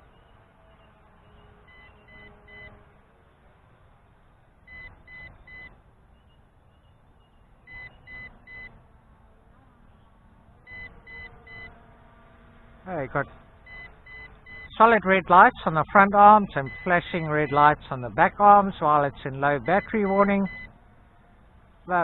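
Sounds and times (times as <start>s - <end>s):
short high warning beeps: 1.7s - 2.7s, 7.7s - 8.7s, 10.7s - 11.7s, 13.7s - 14.9s, 16.5s - 17.7s, 19.6s - 20.7s.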